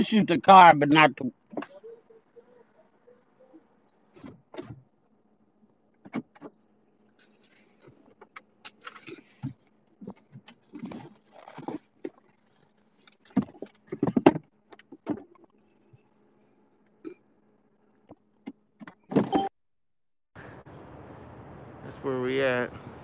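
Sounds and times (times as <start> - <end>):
phone and clothing rustling: 6.0 - 17.1.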